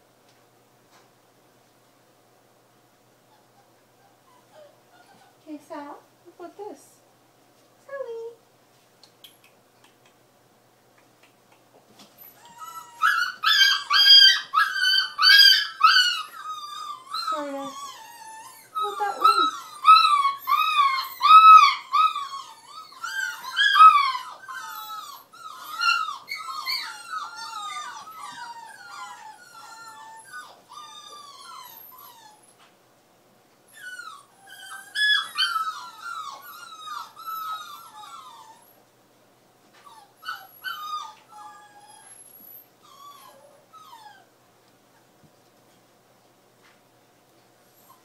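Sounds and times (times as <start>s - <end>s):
puppy whining and yelping: 3.2s - 5.4s, 12.1s - 32.7s, 33.6s - 38.9s, 39.7s - 45.2s, 47.6s - 48.0s.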